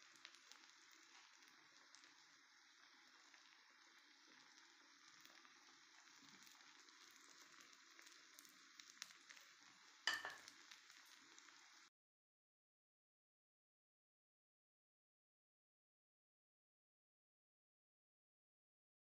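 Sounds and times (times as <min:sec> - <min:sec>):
food sizzling in a frying pan: 0:00.0 - 0:11.9.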